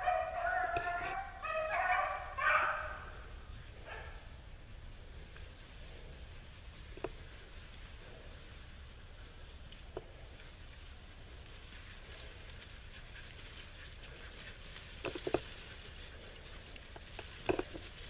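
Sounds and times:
dogs barking: 0.0 - 4.4.

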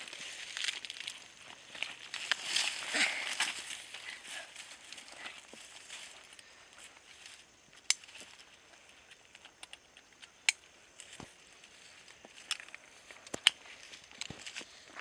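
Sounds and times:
dry leaves and clothing rustling: 0.0 - 9.5, 10.3 - 15.0
sharp clicks: 9.1 - 10.7.

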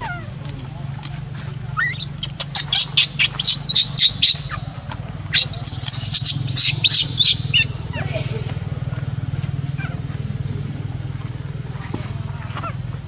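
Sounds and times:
steady low hum: 0.0 - 13.0
bird chirping: 1.0 - 8.4.

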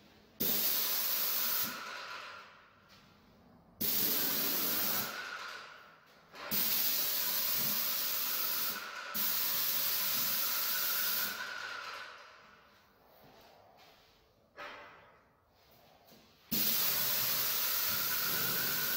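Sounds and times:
paint sprayer hissing: 0.4 - 1.9, 3.8 - 5.2, 6.5 - 11.5, 16.5 - 18.9.

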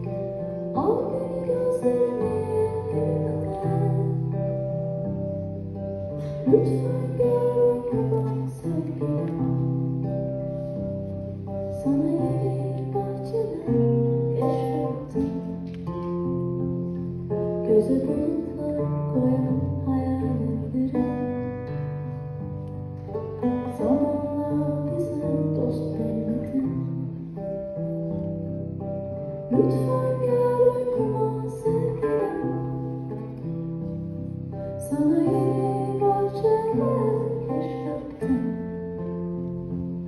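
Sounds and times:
guitar accompaniment: 0.0 - 40.0
woman singing into microphone: 0.7 - 4.6, 6.2 - 9.6, 11.7 - 15.5, 17.5 - 21.4, 23.6 - 27.2, 29.5 - 33.0, 34.8 - 39.1.

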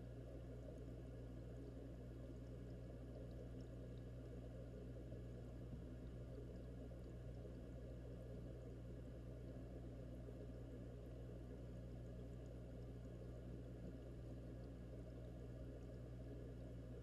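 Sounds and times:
aquarium pump hum: 0.0 - 17.0
muffled underwater bubbling: 0.0 - 17.0.

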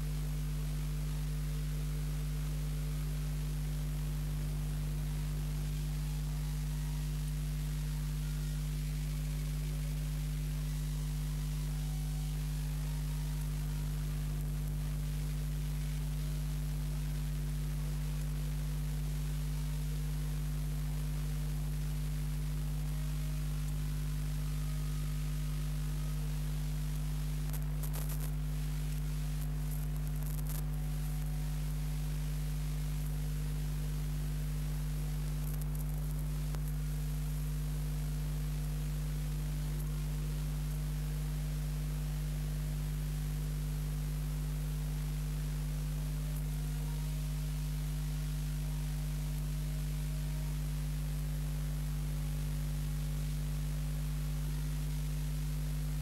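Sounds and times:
faint hiss: 0.0 - 42.2, 44.7 - 56.0
electrical mains hum: 0.0 - 56.0
faint crackles: 25.7 - 37.5.

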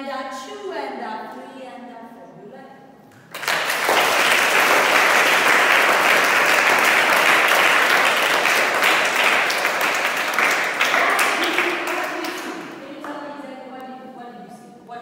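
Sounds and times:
people applauding: 3.1 - 12.8.

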